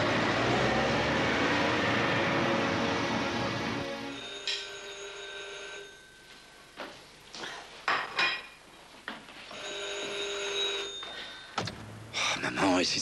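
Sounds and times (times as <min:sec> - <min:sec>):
telephone ringing: 0:04.1 - 0:06.7, 0:09.5 - 0:11.6
dishes clinking: 0:04.4 - 0:04.8, 0:07.8 - 0:08.6.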